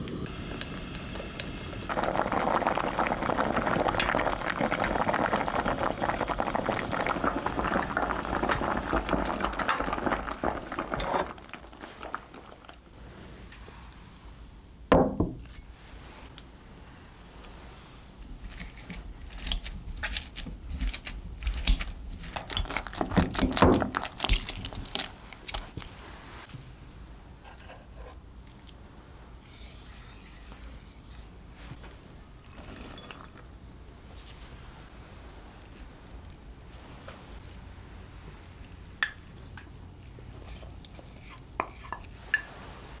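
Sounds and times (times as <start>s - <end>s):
potatoes being mashed: 18.4s - 25.9s.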